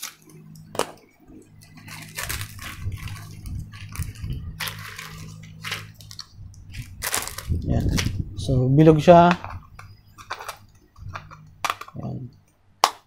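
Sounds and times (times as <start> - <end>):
plastic wrapping crinkling: 0.0 - 12.1
steady low hum: 0.0 - 12.9.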